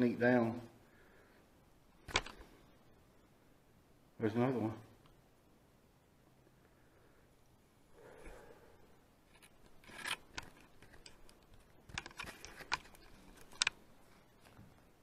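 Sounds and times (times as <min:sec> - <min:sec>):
camera gear clicks and scrapes: 0:02.0 - 0:02.5, 0:09.3 - 0:13.8
soft rustle: 0:09.2 - 0:15.0.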